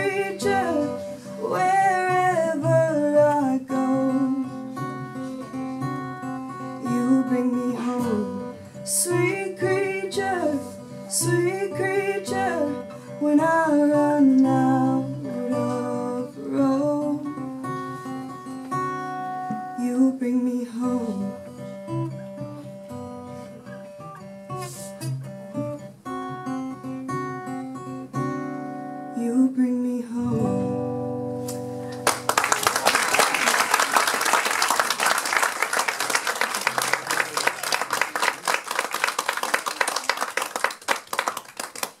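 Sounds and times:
acoustic guitars playing: 0.0 - 42.0
audience applause: 32.0 - 42.0.

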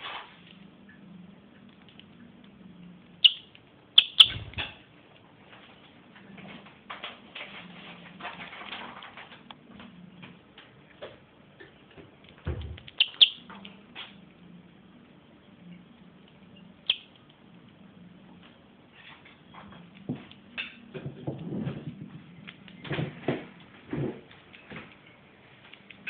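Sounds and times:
lovebird chirping: 3.2 - 4.8, 12.9 - 13.5, 16.5 - 17.2.

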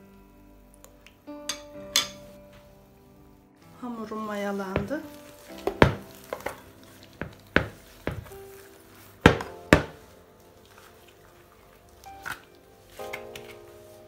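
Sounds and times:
dough thumping in plastic bowl: 5.7 - 6.6, 9.3 - 10.0.

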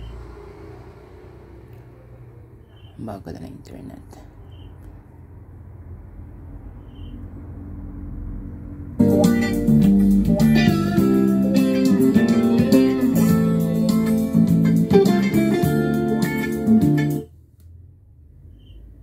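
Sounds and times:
guitar music with bass line: 9.0 - 17.3.

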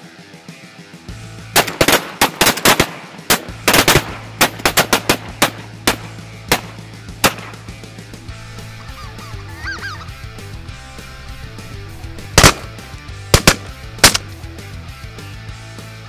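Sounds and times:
music: 0.0 - 16.0
shotgun blasts: 1.6 - 7.8, 11.5 - 14.4.

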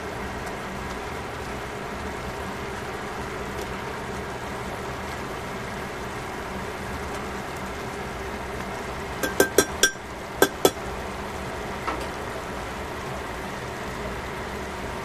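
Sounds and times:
tongs clicking against pan: 9.2 - 10.8.

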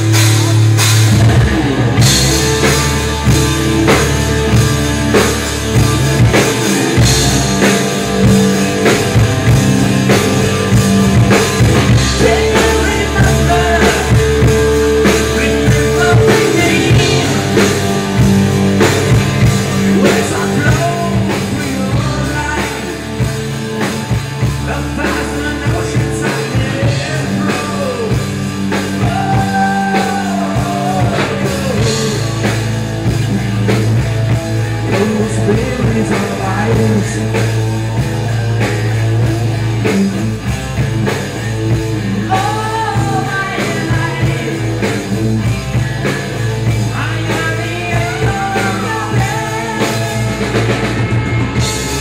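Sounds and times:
live rock band: 0.0 - 52.0
man singing: 11.5 - 18.3, 19.0 - 23.8, 24.4 - 32.8, 34.7 - 38.7, 42.1 - 45.3, 46.6 - 50.9.

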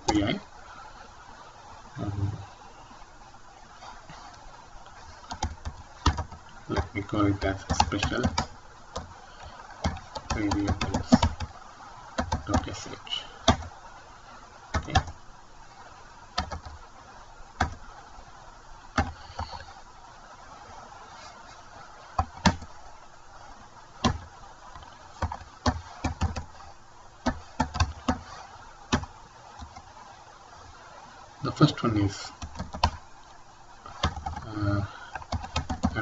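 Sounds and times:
faint steady hum: 0.0 - 36.0
keyboard keystrokes clicking: 35.2 - 36.0.

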